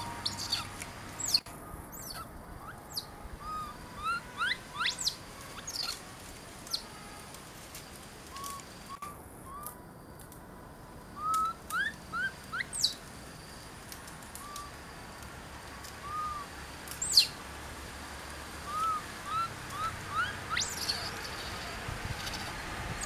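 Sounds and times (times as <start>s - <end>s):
baby monkeys chirping coos: 0.0s - 6.0s, 6.6s - 7.2s, 8.3s - 9.8s, 11.2s - 13.0s, 14.3s - 14.8s, 16.0s - 17.4s, 18.6s - 22.6s.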